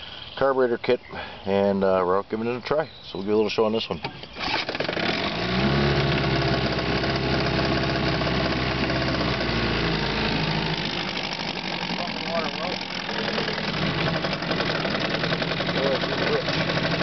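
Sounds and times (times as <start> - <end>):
outboard motor running: 4.0 - 17.0.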